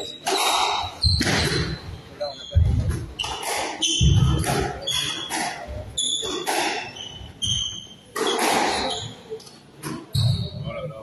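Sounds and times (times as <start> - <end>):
court shoes squeaking on hardwood: 0.0 - 10.7
squash ball smacking walls: 2.8 - 6.9.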